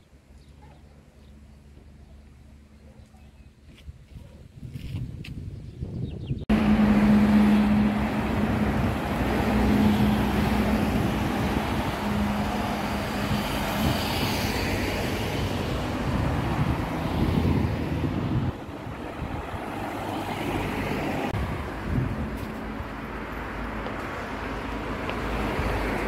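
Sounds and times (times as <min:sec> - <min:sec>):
low engine hum: 0:06.4 - 0:26.0
vehicles passing: 0:06.5 - 0:26.0.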